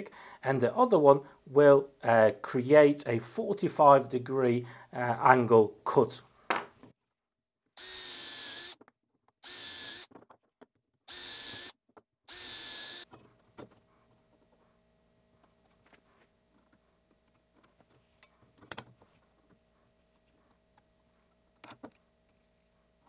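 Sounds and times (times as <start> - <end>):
cordless drill boring holes: 7.8 - 10.2, 11.1 - 13.1
faint clicks and scrapes of handling: 15.4 - 23.0.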